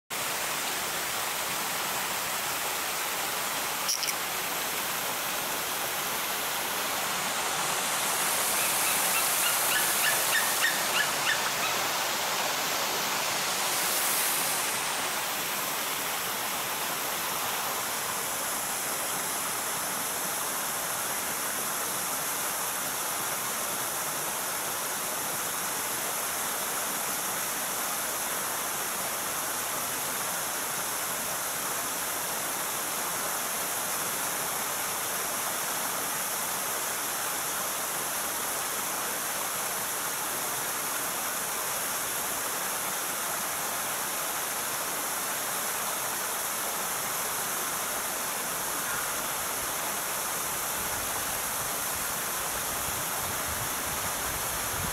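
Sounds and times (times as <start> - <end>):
high chirping calls: 3.9 - 4.2, 8.6 - 11.8.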